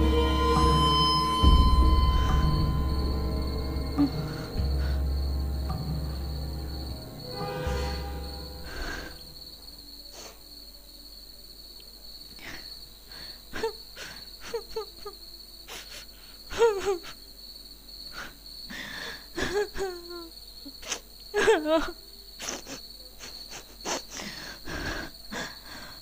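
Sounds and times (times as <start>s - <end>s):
woman sobbing and whimpering: 0.0s - 6.2s, 8.6s - 9.3s, 12.4s - 17.3s, 18.1s - 26.0s
crickets chirring: 0.0s - 26.0s.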